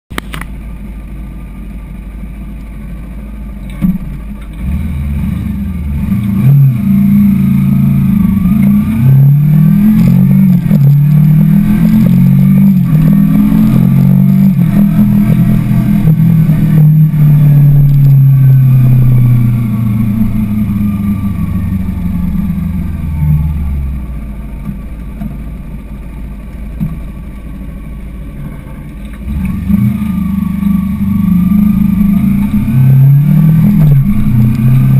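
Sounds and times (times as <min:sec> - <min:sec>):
motorcycle engine revving: 0:04.5 - 0:24.4, 0:29.1 - 0:34.9.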